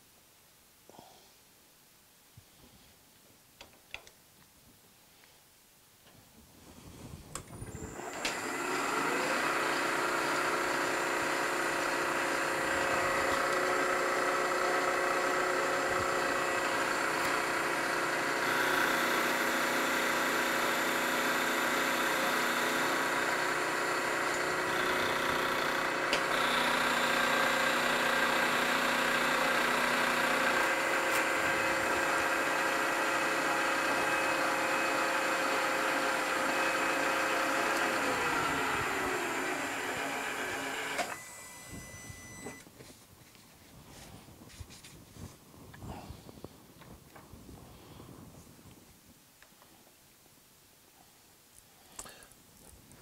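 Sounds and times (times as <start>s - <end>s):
end mill cutting aluminium: 7.7s - 42.6s
milling machine spindle running: 7.7s - 42.6s.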